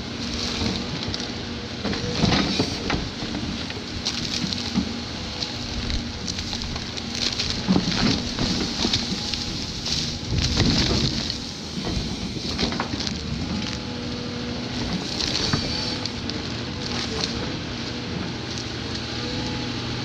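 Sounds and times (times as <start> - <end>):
excavator diesel engine under load: 0.0 - 20.0
roots and wood cracking: 0.0 - 20.0
soil breaking away: 2.0 - 13.9.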